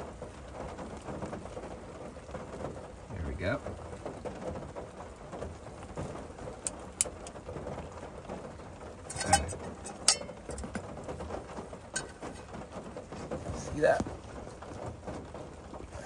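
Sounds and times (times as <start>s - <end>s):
rain patter: 0.0s - 16.0s
stove clicking onto gas canister: 6.6s - 7.4s
metal pot knocking: 9.1s - 10.9s.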